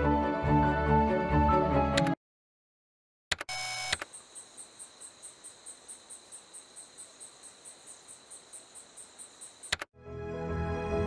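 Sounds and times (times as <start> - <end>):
crickets chirping: 3.5 - 9.9.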